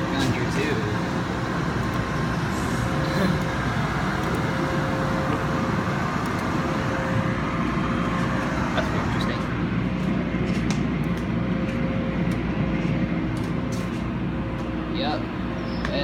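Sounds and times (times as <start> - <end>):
car wash machinery noise: 0.0 - 16.0.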